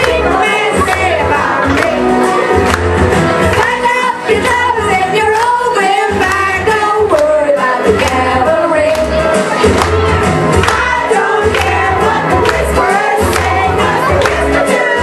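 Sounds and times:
women singing: 0.0 - 2.1, 3.5 - 9.4, 10.6 - 15.0
karaoke backing track: 0.0 - 15.0.

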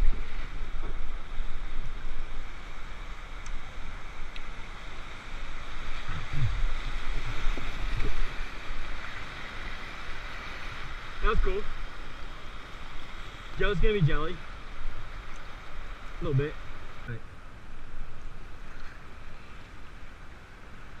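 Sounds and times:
wind buffeting microphone: 0.0 - 12.3
whitewater rushing and splashing: 0.0 - 21.0.

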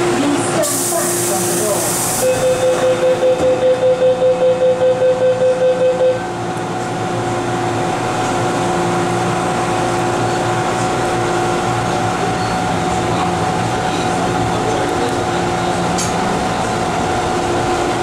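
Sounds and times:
train hum with held tones: 0.0 - 18.0
door-closing warning beeps: 2.2 - 6.3.

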